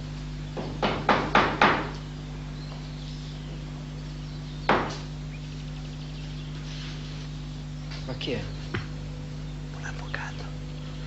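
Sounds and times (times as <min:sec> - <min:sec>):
steady low hum: 0:00.0 - 0:11.0
sharp knocks: 0:00.6 - 0:02.0, 0:04.7 - 0:05.1.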